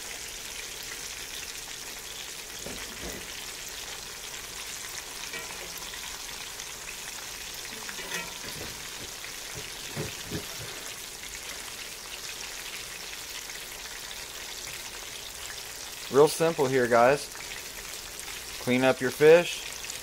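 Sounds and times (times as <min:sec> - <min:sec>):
oil sizzling and crackling: 0:00.0 - 0:20.0
fork knocking in skillet: 0:05.3 - 0:05.9, 0:07.9 - 0:10.9.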